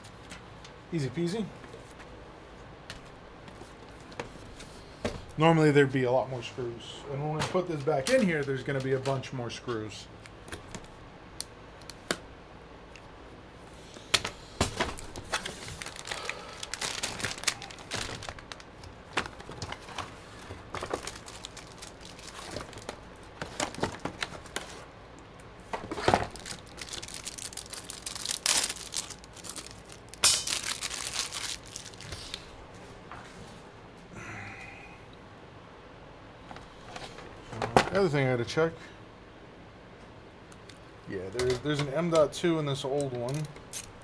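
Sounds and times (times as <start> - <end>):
plastic bag crinkling: 15.0 - 24.8, 26.0 - 32.5.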